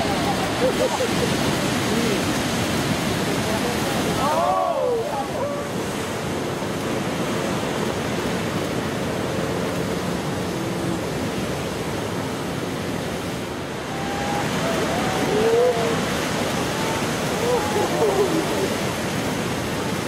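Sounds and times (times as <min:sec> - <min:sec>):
ocean surf roaring: 0:00.0 - 0:20.0
wind: 0:00.0 - 0:20.0
distant voices whooping: 0:04.2 - 0:05.8, 0:13.8 - 0:19.0.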